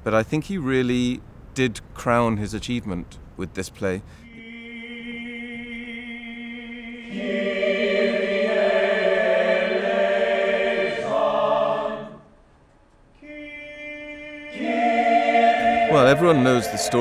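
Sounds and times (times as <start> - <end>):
group singing unaccompanied: 4.2 - 12.4, 13.2 - 17.0.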